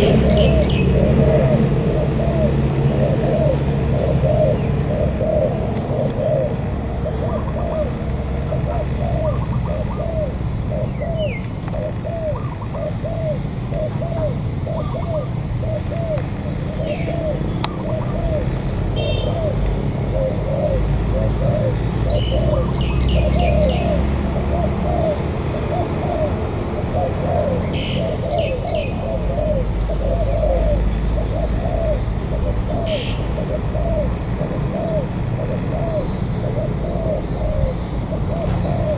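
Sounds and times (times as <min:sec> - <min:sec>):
small bird chirping: 0:00.0 - 0:25.2
dove cooing: 0:00.0 - 0:38.9.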